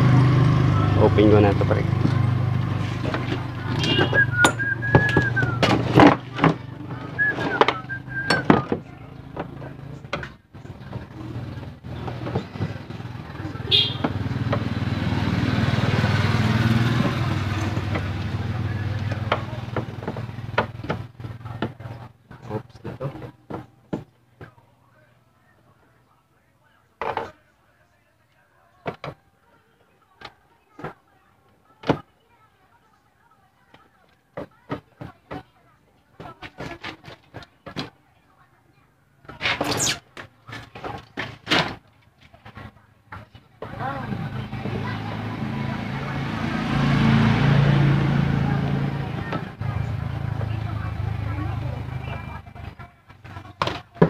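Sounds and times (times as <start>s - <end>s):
person whistling: 4.0s - 5.6s, 7.2s - 8.6s.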